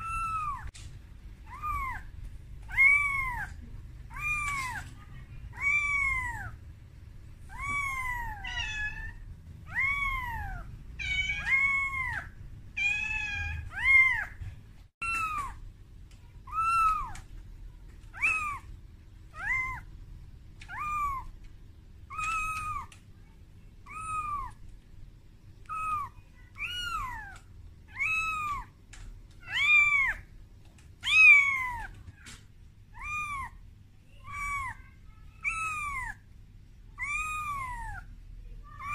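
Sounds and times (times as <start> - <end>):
kitten meowing: 0.0 - 0.7, 1.4 - 4.9, 5.5 - 6.6, 7.5 - 14.3, 15.0 - 15.6, 16.4 - 17.3, 18.2 - 18.7, 19.3 - 19.9, 20.6 - 21.4, 22.1 - 23.0, 23.8 - 24.6, 25.6 - 28.7, 29.4 - 30.2, 31.0 - 32.0, 33.0 - 33.6, 34.2 - 36.2, 37.0 - 38.1.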